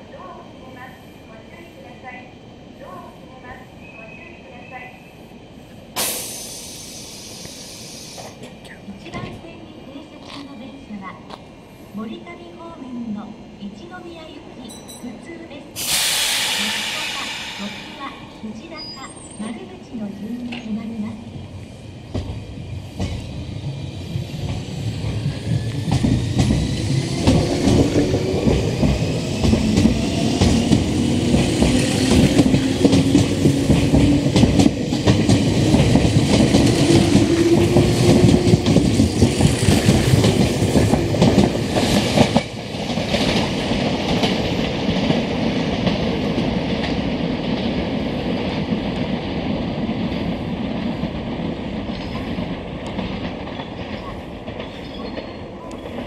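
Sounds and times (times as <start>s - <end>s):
distant train rumble: 13.2s - 56.0s
electric train accelerating past: 15.7s - 20.0s, 21.1s - 56.0s.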